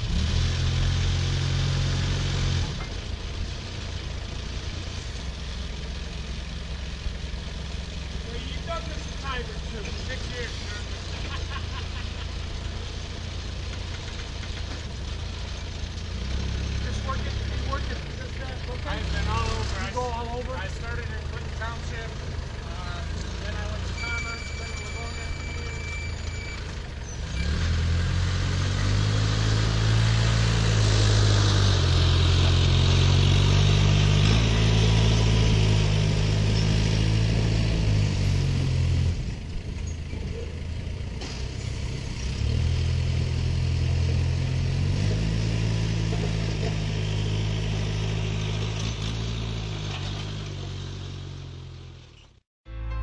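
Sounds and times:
heavy diesel engine running: 0.0 - 52.2.

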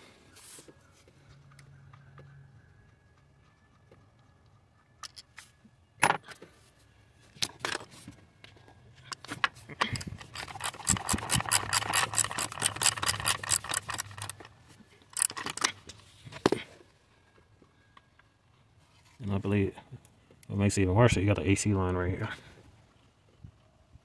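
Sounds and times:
hand ratchet clicking: 10.0 - 14.5, 15.1 - 15.7
clacks of parts handled: 15.1 - 16.6.

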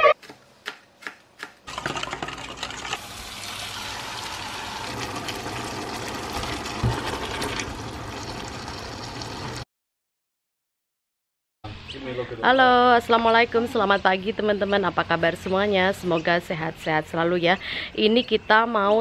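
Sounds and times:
knife chopping on cutting board: 0.2 - 1.6
chicken sizzling in frying pan: 3.0 - 9.6.

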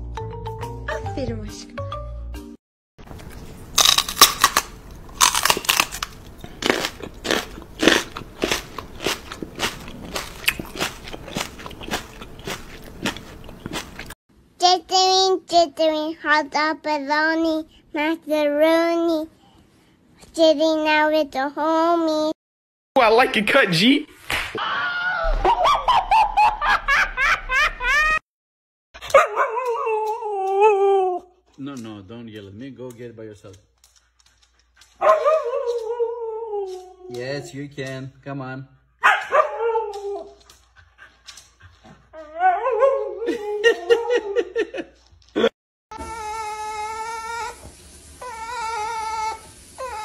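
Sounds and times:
dog howling: 29.1 - 31.4, 35.0 - 37.4, 39.2 - 40.4, 42.1 - 44.5.

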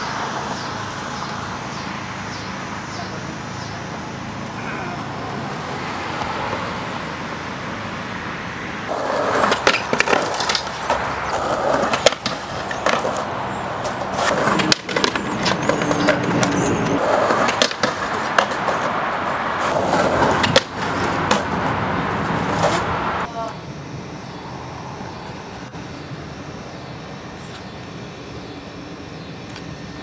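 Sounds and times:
skateboard wheels rolling on asphalt: 0.0 - 30.0
skateboard clacking on ground: 8.9 - 22.9.

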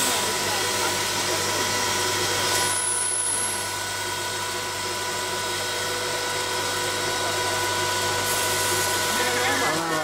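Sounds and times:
hot-air blower tones: 0.0 - 10.0
popcorn machine hum: 0.0 - 10.0.

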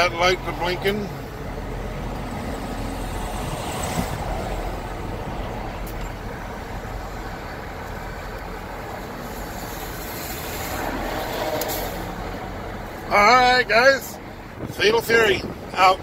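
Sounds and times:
diesel locomotive idling: 4.2 - 10.3.

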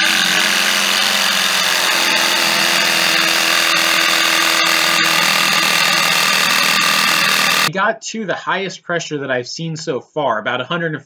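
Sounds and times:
air compressor running: 0.0 - 7.7.

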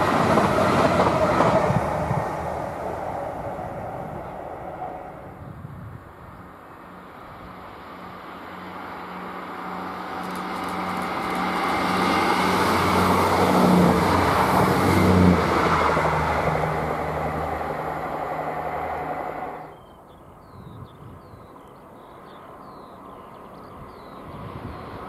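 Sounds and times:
wheel-on-rail rumble: 0.0 - 19.8
diesel engine drone: 6.8 - 19.7.

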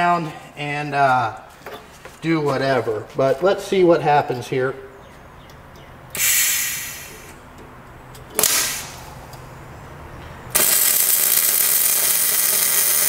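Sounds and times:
welding arc running: 6.2 - 7.3, 8.4 - 9.3, 10.5 - 13.0
short bursts of hiss: 6.2 - 7.4.

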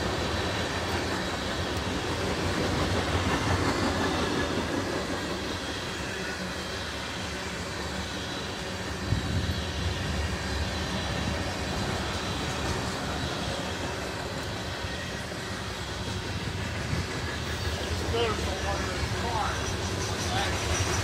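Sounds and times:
freight train rolling on rails: 0.0 - 21.0.

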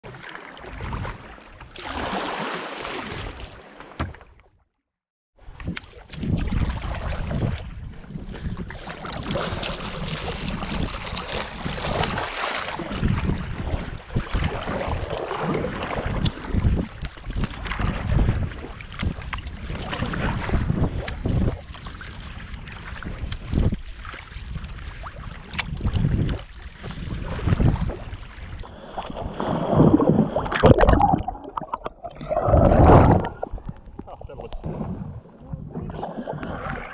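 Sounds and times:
water splashing and lapping: 0.0 - 4.6, 5.4 - 36.9
wind buffeting microphone: 25.6 - 36.8.

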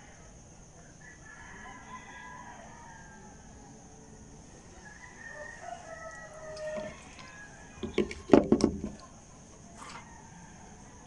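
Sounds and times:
rooster crowing: 1.0 - 3.8, 4.7 - 8.3, 9.8 - 11.0
plastic knocks on table: 7.8 - 9.0.

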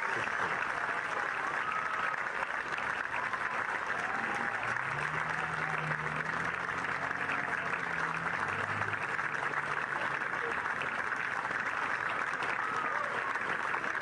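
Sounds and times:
crowd applauding: 0.0 - 14.0.

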